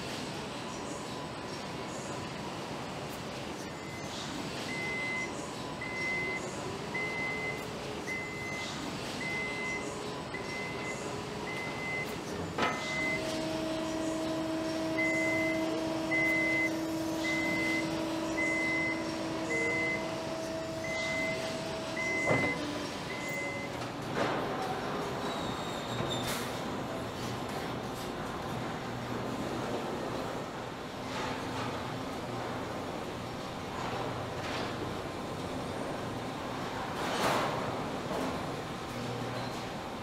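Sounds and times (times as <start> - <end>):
factory machinery noise: 0.0 - 40.0
forklift warning beeper: 3.8 - 23.8.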